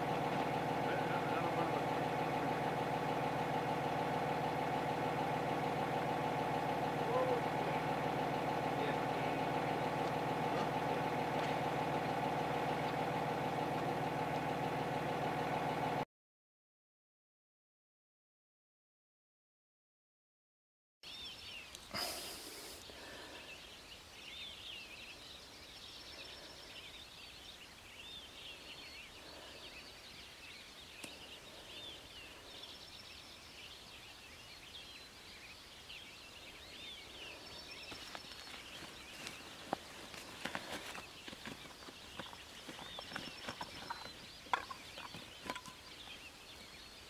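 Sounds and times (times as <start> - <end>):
small birds chirping: 0.0 - 16.0, 21.0 - 47.0.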